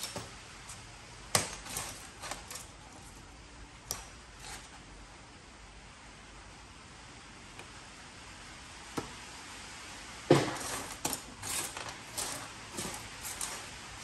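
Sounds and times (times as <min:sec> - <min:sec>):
scrap metal clinking into bin: 0:01.4 - 0:03.1, 0:10.3 - 0:13.8.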